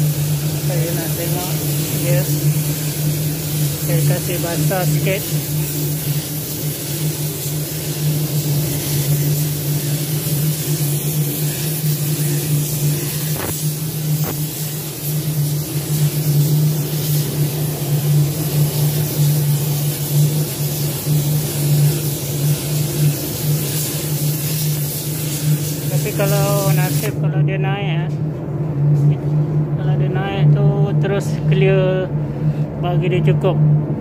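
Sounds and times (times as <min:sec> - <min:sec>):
spray gun hissing: 0:00.0 - 0:27.2.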